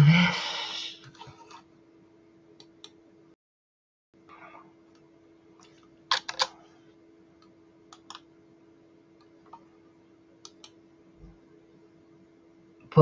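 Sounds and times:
faint steady hum: 0.0 - 3.4, 4.2 - 13.0
keyboard and mouse clicking: 7.9 - 8.3, 10.4 - 10.8.

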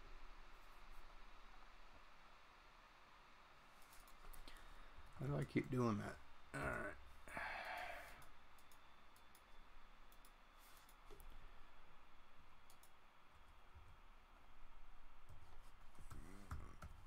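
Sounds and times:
breathy sigh: 6.6 - 8.3
computer mouse and keyboard clicks: 12.7 - 13.0.

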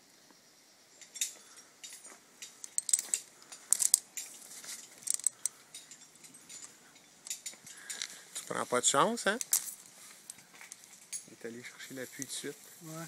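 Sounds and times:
climbing hardware clinking: 1.0 - 11.4.

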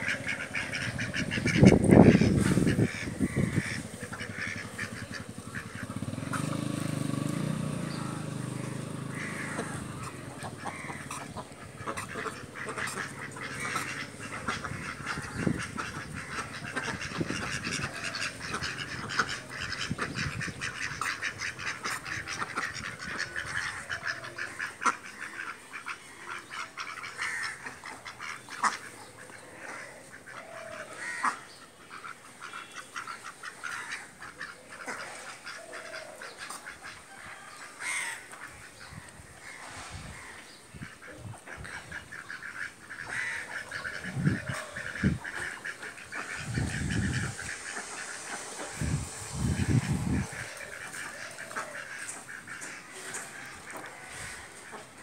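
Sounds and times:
ducks quacking: 0.0 - 55.0.

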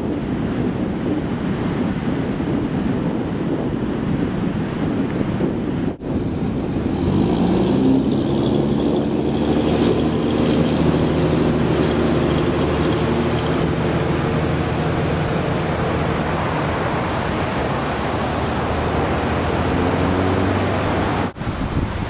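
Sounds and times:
background rushing noise: 0.0 - 22.0
vehicle engine running: 6.0 - 21.4.

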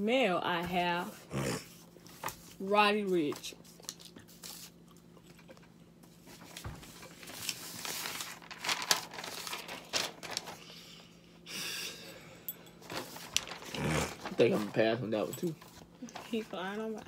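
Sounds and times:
paper rustling and crinkling: 2.0 - 5.1, 6.1 - 10.9, 12.8 - 16.9.

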